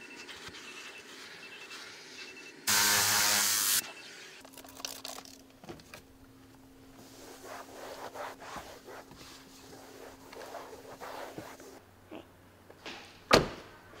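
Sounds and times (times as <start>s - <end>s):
towel rubbing dashboard: 7.0s - 11.8s.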